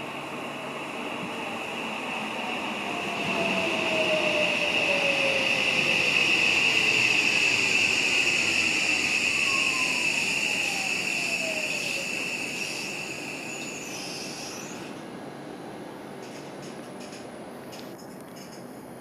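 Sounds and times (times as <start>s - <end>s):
electric train running: 0.2s - 15.0s.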